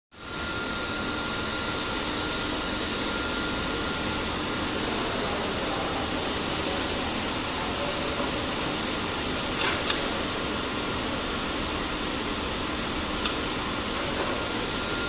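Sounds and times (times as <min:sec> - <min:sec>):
faint high whine: 0:00.2 - 0:07.2, 0:14.4 - 0:15.0
workshop machinery humming: 0:00.2 - 0:15.0.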